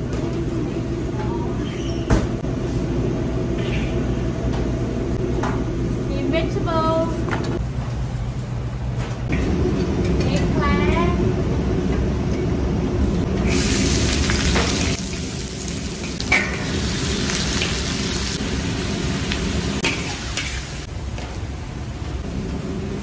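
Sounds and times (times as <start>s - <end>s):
low rumble: 9.3s - 16.1s
food sizzling in a wok: 13.2s - 20.9s.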